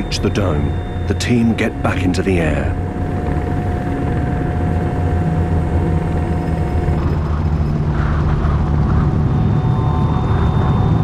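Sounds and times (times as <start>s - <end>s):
helicopter rotor drone: 0.0s - 11.0s
thin steady whine: 0.0s - 11.0s.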